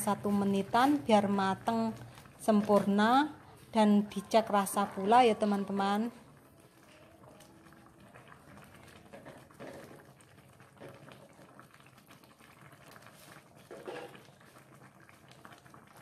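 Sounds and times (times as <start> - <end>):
stew bubbling in a pan: 0.0 - 16.0
wooden spatula scraping and knocking: 13.7 - 14.2.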